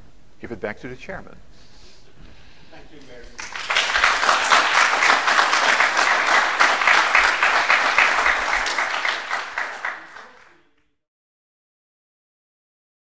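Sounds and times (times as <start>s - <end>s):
audience applauding: 3.4s - 10.7s.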